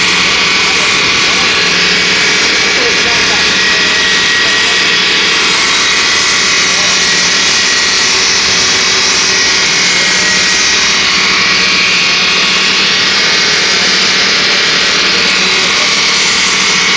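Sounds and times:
saw blade grinding stone: 0.0s - 16.9s.

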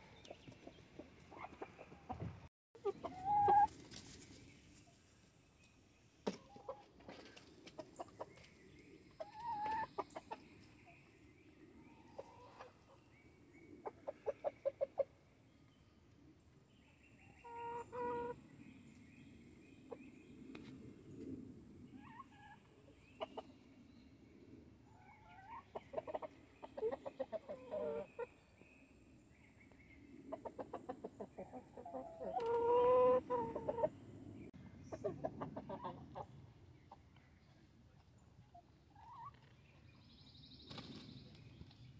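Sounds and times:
chickens clucking: 0.0s - 4.3s, 6.3s - 11.0s, 12.0s - 13.1s, 13.8s - 15.2s, 17.4s - 18.4s, 22.0s - 23.6s, 24.9s - 28.4s, 30.3s - 34.0s, 34.8s - 39.6s
drawn-out chicken calls: 2.8s - 4.2s, 9.2s - 10.4s, 12.1s - 13.0s, 17.4s - 18.4s, 25.0s - 28.4s, 30.3s - 34.0s, 34.9s - 37.0s.

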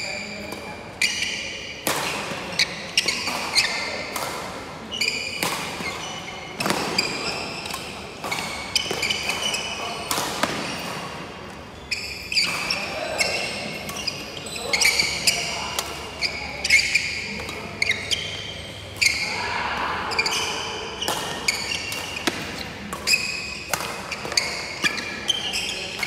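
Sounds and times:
shoes squeaking on wooden floor: 4.9s - 11.0s, 11.7s - 19.3s
rackets striking shuttlecock: 21.0s - 26.0s.

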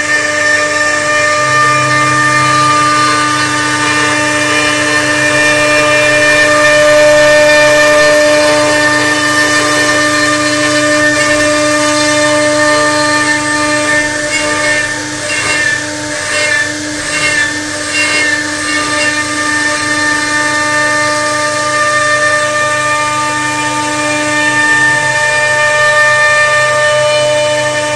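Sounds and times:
bit cutting wood: 0.0s - 21.2s
router spindle whining: 0.0s - 27.9s.

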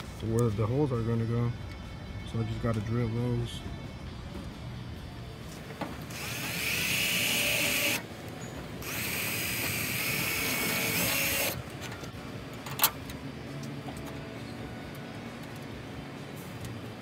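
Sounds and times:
cordless drill whining: 6.1s - 8.1s, 8.8s - 11.6s.

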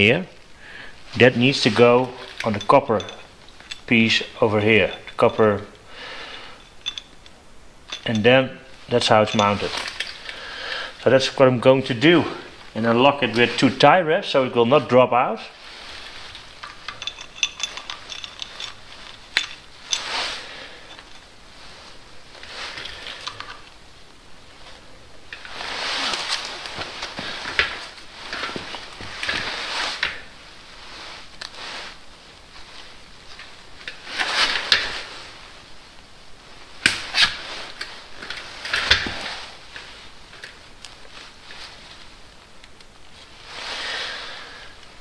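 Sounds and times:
metal parts clicking and rattling: 1.4s - 10.4s, 16.0s - 21.4s, 22.3s - 23.8s, 33.2s - 35.1s, 36.8s - 39.4s
timing chain clicking and rattling: 16.7s - 20.1s.

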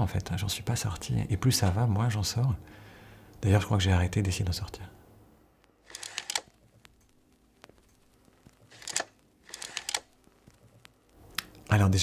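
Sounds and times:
camera shutter clicks and whirrs: 5.8s - 6.9s, 8.4s - 10.9s.

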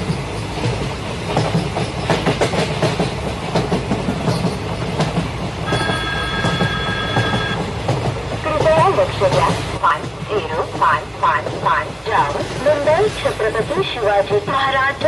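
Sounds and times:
model train rumbling and clicking: 0.0s - 15.0s
steady high tone: 5.6s - 7.6s.

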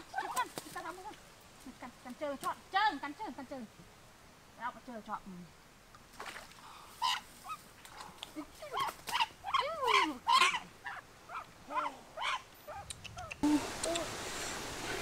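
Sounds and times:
steady hiss: 10.0s - 15.0s.

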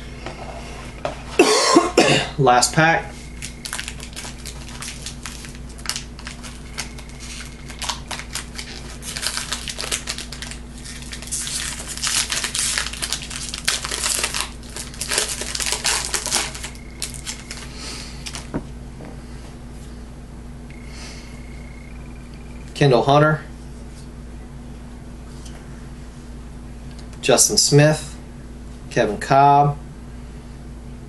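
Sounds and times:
foil wrapper tearing and crumpling: 3.4s - 18.5s.

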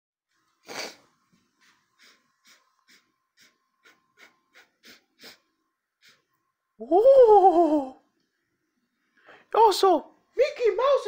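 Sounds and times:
person sniffing: 0.6s - 6.4s.

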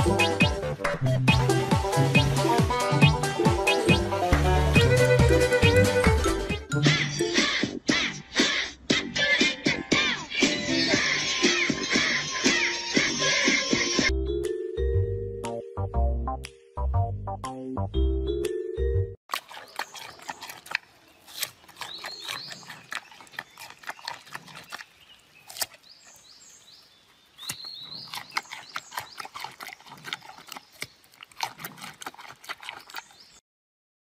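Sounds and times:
music: 0.0s - 19.2s
panda crunching raw carrot: 19.3s - 26.3s, 27.4s - 33.4s.

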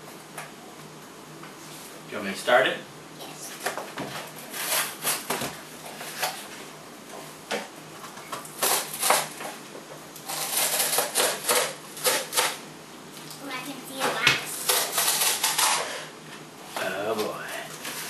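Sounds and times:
cardboard and tape tearing: 3.5s - 6.5s, 8.5s - 9.5s, 10.2s - 12.6s, 14.4s - 16.0s.

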